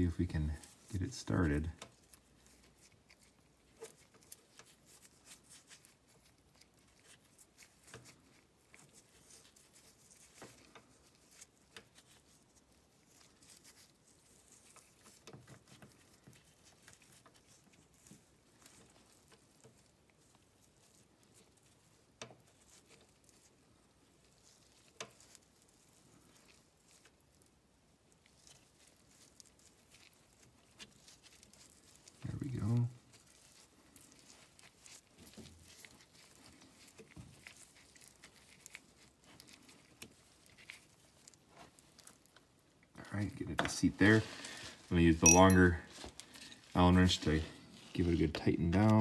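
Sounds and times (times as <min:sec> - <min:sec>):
metal tool clicking and scratching: 0:45.2 - 0:45.7.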